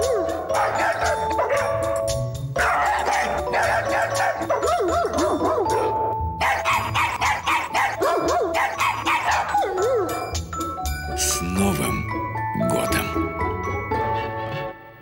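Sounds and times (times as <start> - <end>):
dog barks and howls singing: 0.0 - 1.9, 2.6 - 10.4
music track with steady beat: 0.0 - 11.3.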